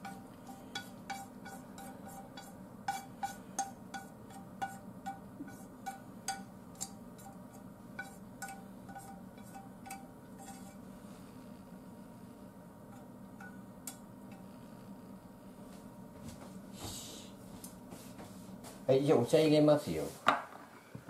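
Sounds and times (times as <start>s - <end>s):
chopsticks tapping on a frying pan: 0.0s - 10.1s, 13.0s - 14.4s.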